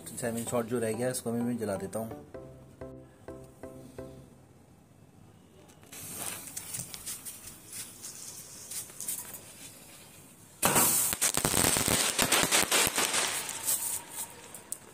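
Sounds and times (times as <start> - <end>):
firework cracks and bangs: 10.6 - 14.9
firework fizzing and crackling: 10.6 - 14.9.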